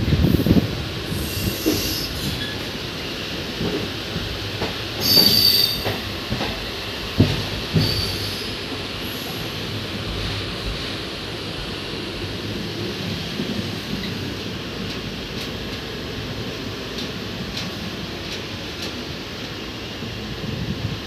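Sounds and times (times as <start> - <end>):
train wheels rumbling on rails: 0.0 - 21.0
high-pitched metallic squeal: 5.0 - 5.9.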